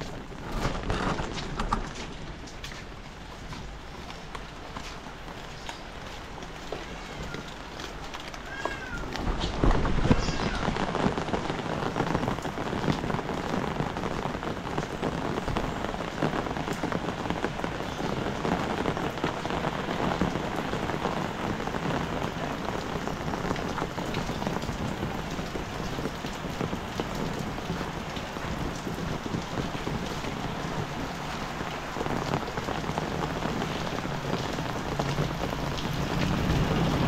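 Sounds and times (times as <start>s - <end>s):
heavy rain falling: 0.0s - 37.0s.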